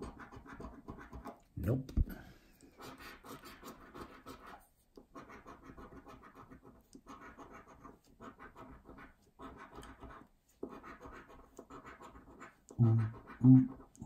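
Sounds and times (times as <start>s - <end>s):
coin scratching scratchcard: 5.2s - 14.0s.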